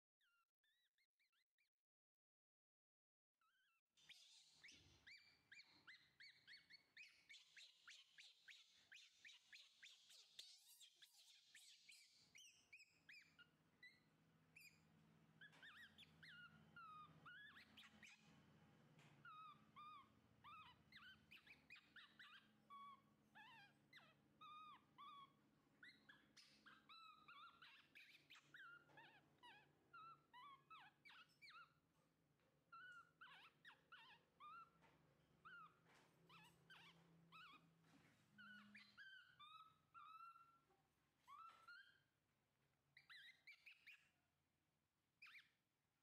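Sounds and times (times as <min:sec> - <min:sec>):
baby monkey squeaky whimpering: 0:03.4 - 0:14.8, 0:15.4 - 0:18.2, 0:19.2 - 0:31.8, 0:32.7 - 0:34.8, 0:35.4 - 0:37.7, 0:38.4 - 0:42.1, 0:42.9 - 0:44.2, 0:45.2 - 0:45.6
faint low hum: 0:03.4 - 0:45.5.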